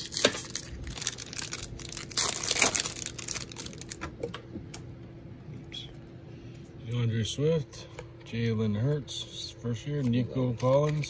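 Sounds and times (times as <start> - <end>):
plastic wrapper tearing and crinkling: 0.0 - 4.2.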